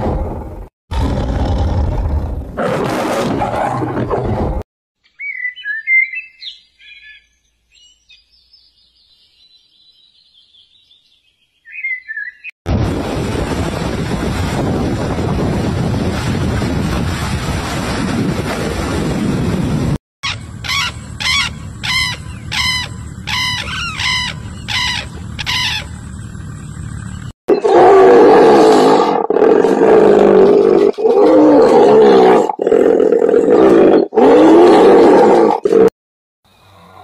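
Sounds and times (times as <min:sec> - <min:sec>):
long wavering animal calls: 0:20.2 - 0:26.0.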